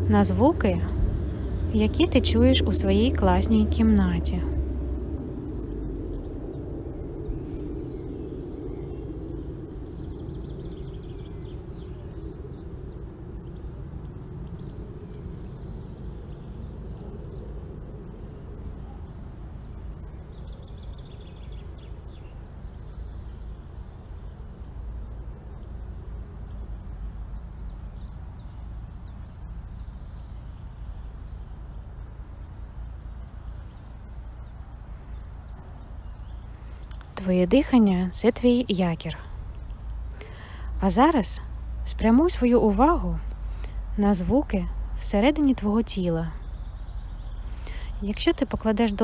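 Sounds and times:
low ambient rumble: 0:00.0 - 0:49.0.

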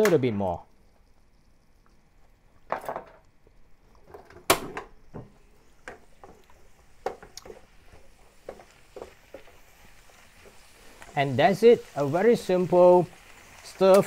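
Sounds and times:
wooden spatula knocking frying pan: 0:07.0 - 0:07.6.

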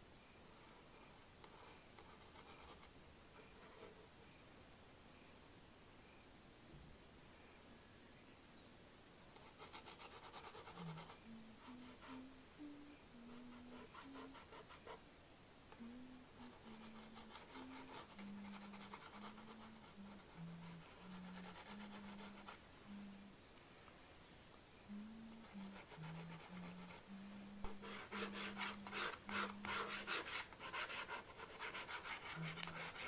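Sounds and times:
stick scratching on paper: 0:09.4 - 0:12.2, 0:16.4 - 0:22.6, 0:25.4 - 0:33.0.

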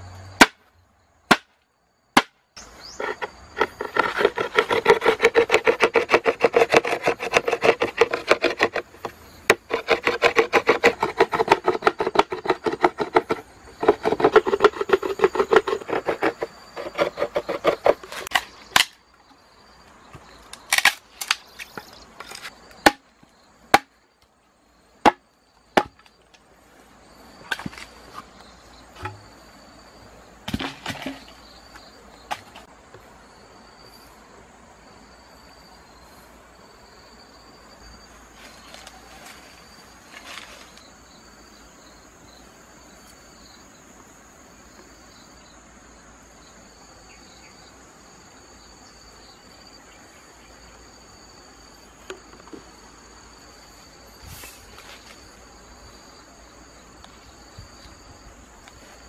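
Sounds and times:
rapid knocking or scraping strokes: 0:03.0 - 0:18.4.

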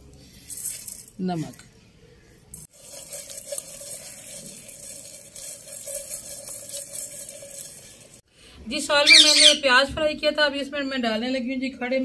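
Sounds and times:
eggs rolling in a steel bowl: 0:02.6 - 0:08.2.

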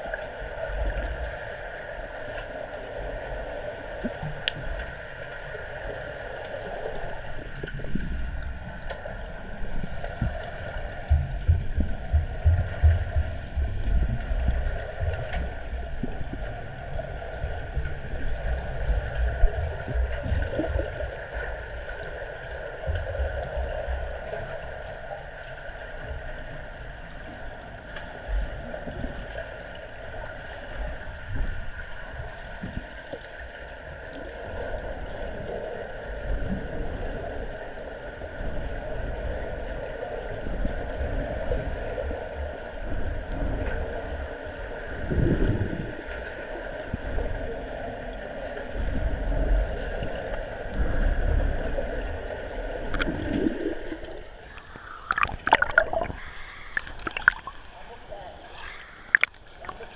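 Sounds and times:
underwater water rushing: 0:00.0 - 0:59.9
low rumbling pulses: 0:07.4 - 0:21.9.

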